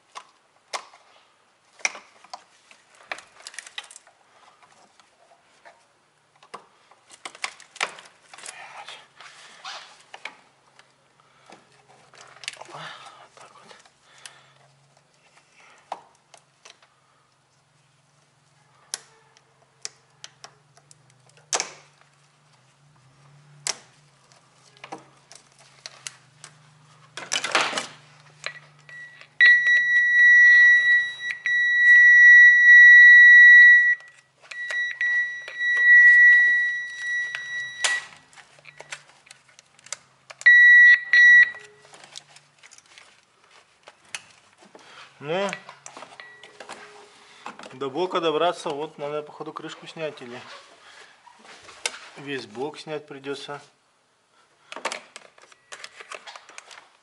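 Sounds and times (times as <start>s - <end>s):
rustle of wiring: 0.1s - 29.3s, 34.0s - 40.5s, 41.4s - 53.8s
multimeter beeping: 28.5s - 39.0s, 40.4s - 41.8s, 46.2s - 46.6s.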